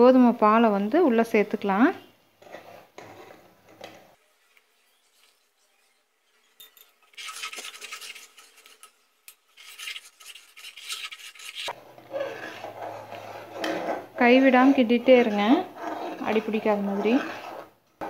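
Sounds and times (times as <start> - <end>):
ladle scraping metal pan: 4.6 - 17.8.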